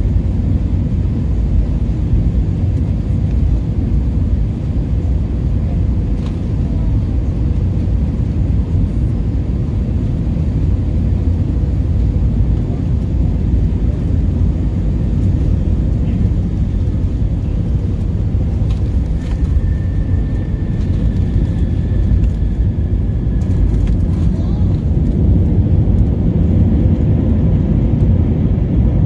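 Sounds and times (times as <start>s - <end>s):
aircraft engine noise: 0.0s - 29.0s
faint high whine: 18.6s - 24.6s.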